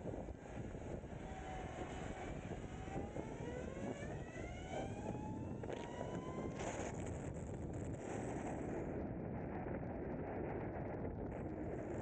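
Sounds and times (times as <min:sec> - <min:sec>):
electric motorcycle motor whining: 0:00.0 - 0:07.9
wind and road noise: 0:00.0 - 0:12.0.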